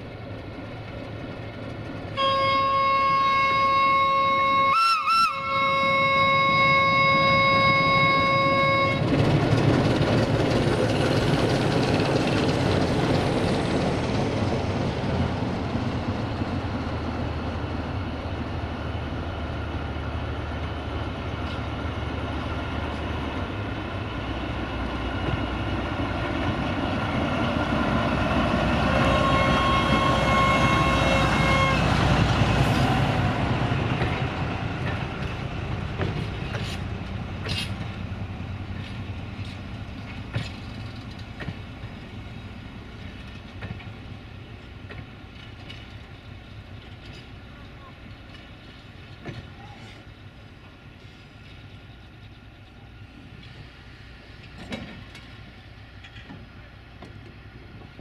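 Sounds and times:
locomotive engine running: 0.0 - 4.8, 5.4 - 58.0
locomotive horn: 2.2 - 9.1, 28.8 - 32.3
tank wagons rolling on rails: 38.7 - 53.7.

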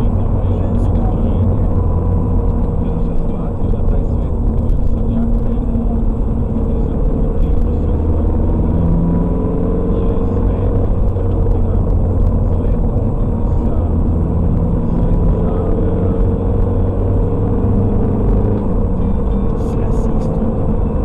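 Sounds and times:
car engine and road noise: 0.0 - 21.0.

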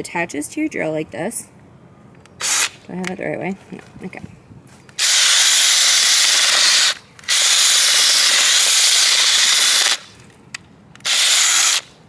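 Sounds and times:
cordless drill spinning auger into soil: 5.0 - 10.1, 11.0 - 11.9.

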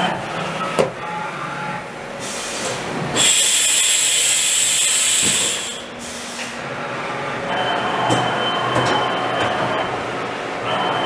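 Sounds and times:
machine high hiss with whine: 2.2 - 6.6
low machine hum: 5.4 - 11.0.

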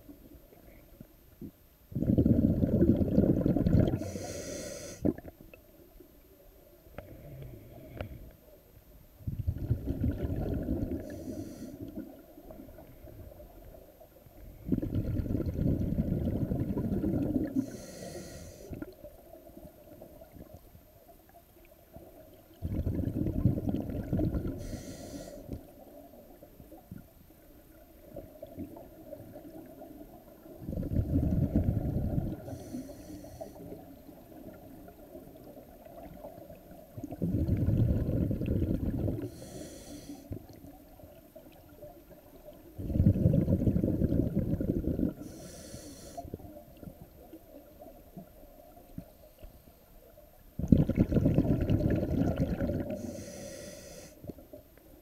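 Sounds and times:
underwater exhale bubbling: 1.9 - 5.4, 9.2 - 13.8, 14.4 - 20.6, 22.0 - 26.8, 27.8 - 49.4, 50.6 - 54.5
regulator hiss on inhale: 3.8 - 5.2, 7.0 - 8.6, 10.8 - 12.4, 17.4 - 19.0, 24.4 - 25.8, 31.5 - 34.1, 37.5 - 40.7, 44.9 - 46.9, 52.8 - 54.5.

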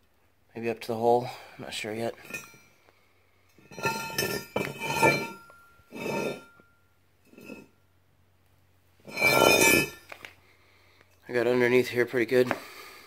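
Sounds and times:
metal object clinking and scraping on concrete: 2.0 - 7.8, 9.0 - 10.4.

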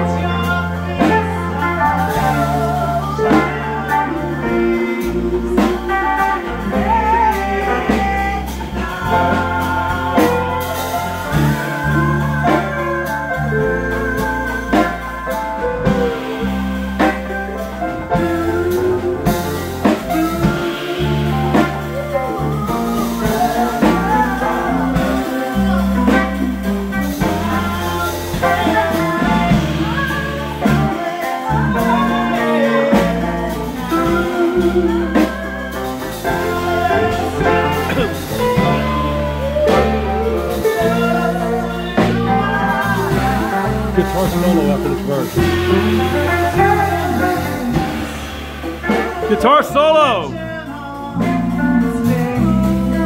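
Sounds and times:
person singing: 0.0 - 48.2, 48.9 - 53.0
drum kit: 0.0 - 53.0
electric guitars: 0.0 - 53.0
piano: 0.0 - 53.0
low bass line: 33.0 - 48.0.

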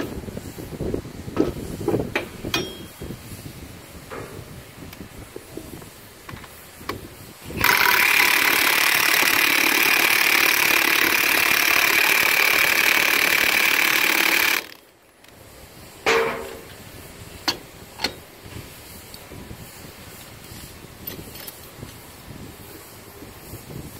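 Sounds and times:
metal clank: 2.2 - 3.0, 16.0 - 16.8, 17.4 - 18.3
impact driver running: 7.6 - 14.9.

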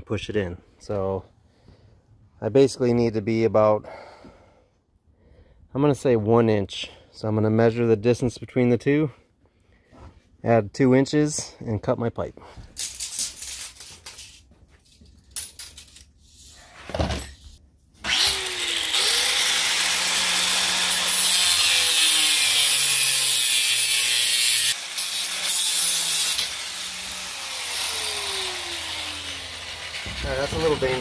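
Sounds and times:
power tool cutting steel conduit: 18.0 - 31.0.

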